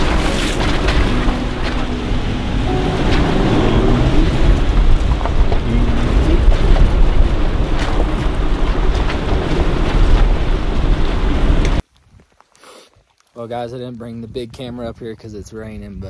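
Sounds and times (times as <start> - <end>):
knocks and rattles over rocks: 0.0 - 2.0, 3.0 - 12.4
tyres rumbling on rocky track: 0.0 - 11.8.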